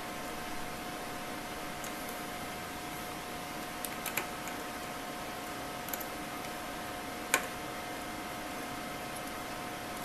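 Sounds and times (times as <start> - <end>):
steady electrical hum: 0.0 - 10.0
small clicks and taps: 3.7 - 4.6.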